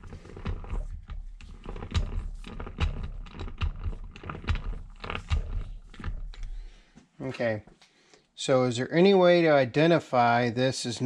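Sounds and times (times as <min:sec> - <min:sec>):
chuck key scraping and clicking: 0:00.0 - 0:06.7.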